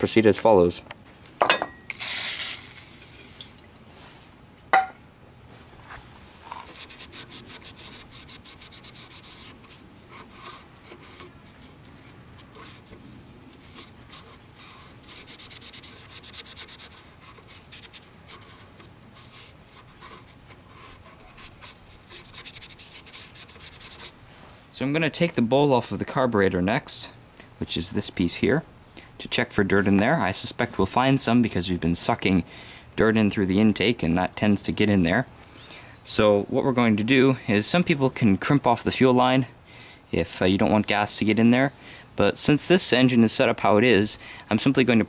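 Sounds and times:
aerosol spray hissing: 0:01.9 - 0:03.3
rag rubbing metal plate: 0:06.5 - 0:24.2.

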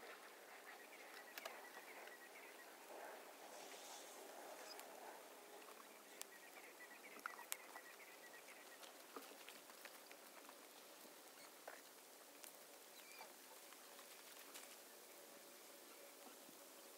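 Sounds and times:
smouldering weeds crackling: 0:00.0 - 0:16.9
small pops and ticks: 0:07.1 - 0:07.8, 0:08.5 - 0:14.8.

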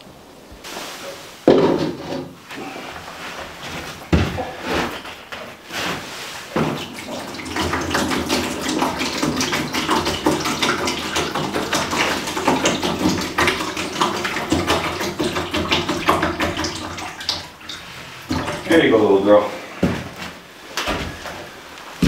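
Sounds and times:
water pouring into a bowl: 0:06.7 - 0:18.8.

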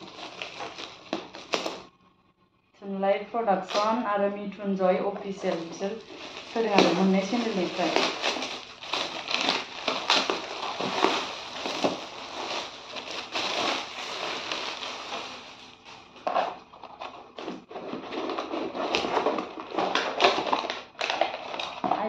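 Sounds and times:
gift wrapping crinkling and tearing: 0:00.0 - 0:01.9, 0:05.3 - 0:22.0.

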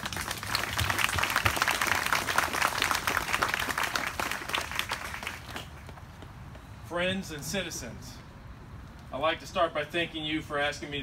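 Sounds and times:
crowd applauding: 0:00.0 - 0:06.0.

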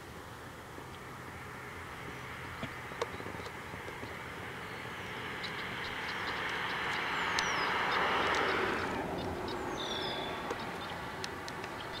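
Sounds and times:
rushing background noise: 0:00.0 - 0:12.0
small birds chirping: 0:00.8 - 0:12.0.

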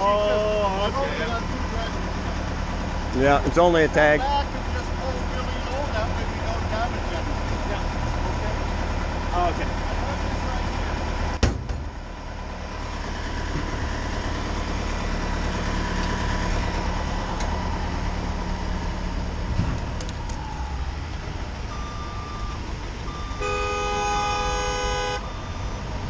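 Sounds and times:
heavy vehicle engines rumbling: 0:00.0 - 0:26.0
car horn honking: 0:23.1 - 0:25.4.

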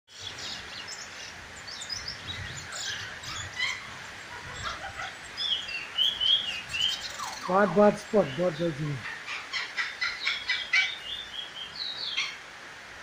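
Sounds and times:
songbird chirping and twittering: 0:00.1 - 0:12.6.

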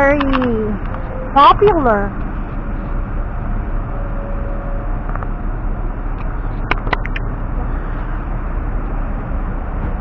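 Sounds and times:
sharp clicks: 0:00.0 - 0:01.0, 0:06.2 - 0:07.3
road traffic noise: 0:00.0 - 0:10.0.

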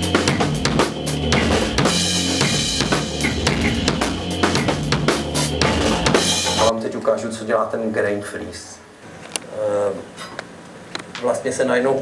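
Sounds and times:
busy drum beat: 0:00.0 - 0:06.7
repeating low bass line: 0:00.0 - 0:06.7.

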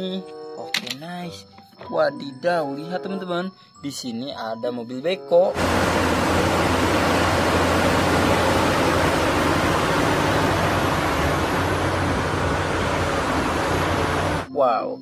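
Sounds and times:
excavator engine rumbling: 0:05.6 - 0:14.5.

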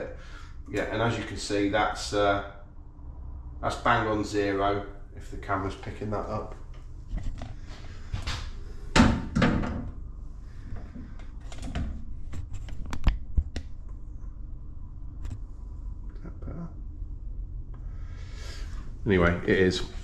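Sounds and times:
steady low hum: 0:00.0 - 0:20.0
knocks and thuds of handling: 0:08.2 - 0:10.0.

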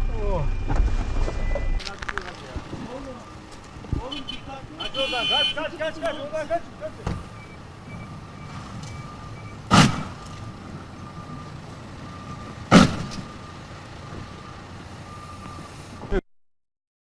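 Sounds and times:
car thudding into parked cars: 0:00.5 - 0:02.8, 0:09.6 - 0:10.2, 0:12.7 - 0:13.3
faint repeated beeping: 0:05.1 - 0:09.7.

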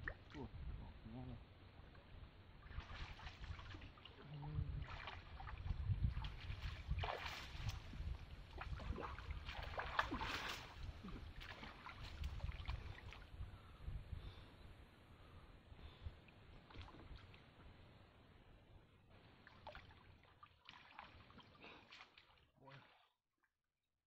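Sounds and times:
water splashing and sloshing: 0:01.7 - 0:13.4, 0:15.8 - 0:18.1, 0:19.1 - 0:23.1.

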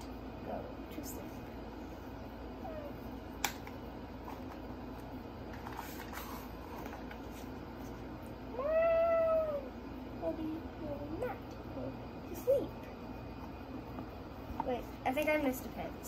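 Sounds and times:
child imitating cat meow: 0:08.5 - 0:09.7.

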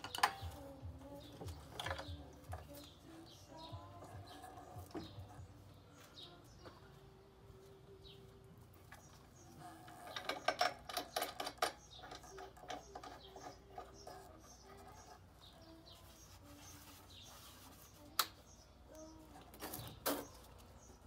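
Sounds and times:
birds chirping faintly: 0:00.0 - 0:21.0
scooter clattering on concrete: 0:08.9 - 0:15.6.

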